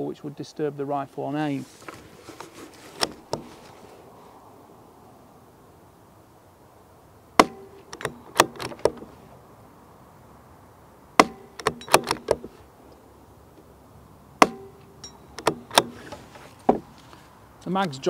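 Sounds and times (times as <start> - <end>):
rifle bolt clicking: 7.4 - 9.0, 11.2 - 12.5, 14.4 - 16.2.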